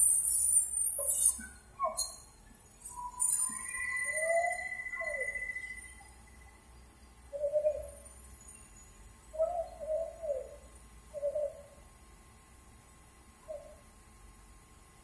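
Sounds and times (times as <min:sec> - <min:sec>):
dove cooing: 0:07.4 - 0:08.0, 0:09.4 - 0:11.8.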